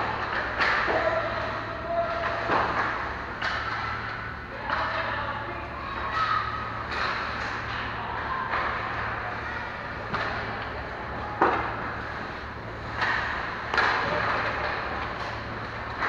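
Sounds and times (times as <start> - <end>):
steady low hum: 0.0 - 16.0
sharp knocks of hockey sticks: 0.2 - 1.2, 2.1 - 5.0, 6.9 - 8.8, 12.9 - 16.0.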